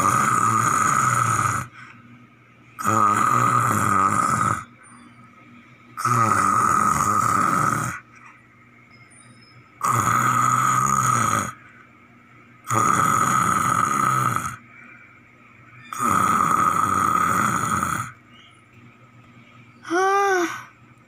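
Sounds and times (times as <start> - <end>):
child snoring: 0.0 - 1.8, 2.8 - 4.7, 6.0 - 8.0, 9.8 - 11.6, 12.6 - 14.6, 15.9 - 18.2, 19.9 - 20.7.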